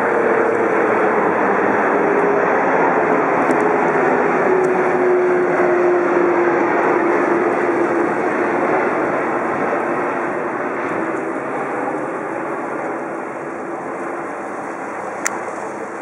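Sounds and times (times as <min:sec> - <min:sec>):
jet airliner passing overhead: 0:00.0 - 0:16.0.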